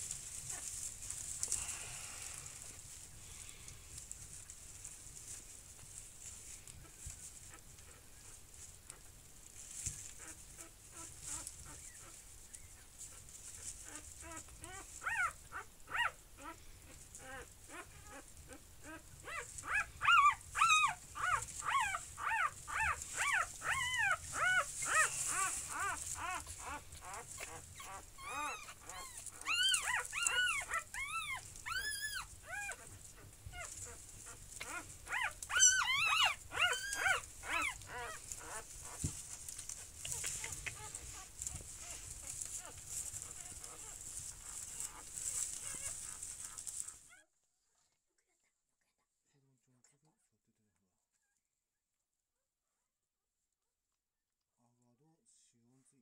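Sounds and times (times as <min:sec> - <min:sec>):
puppies squeaking: 0:13.8 - 0:16.6, 0:17.2 - 0:39.1, 0:39.8 - 0:47.2.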